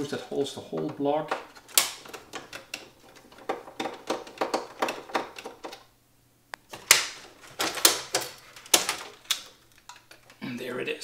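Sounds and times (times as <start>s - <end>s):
screwdriver and parts clicking: 0.8s - 5.8s, 6.6s - 10.4s.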